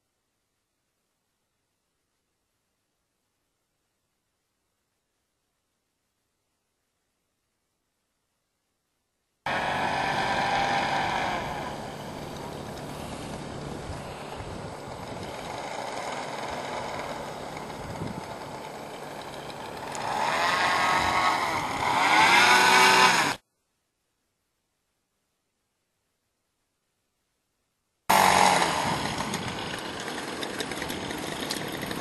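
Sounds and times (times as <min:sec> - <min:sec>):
blimp propeller motors: 0:09.5 - 0:23.4, 0:28.1 - 0:32.0.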